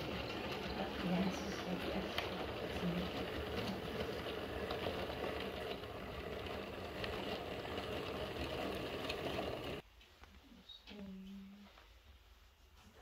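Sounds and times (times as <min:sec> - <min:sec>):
model train rumbling on track: 0:00.0 - 0:09.8.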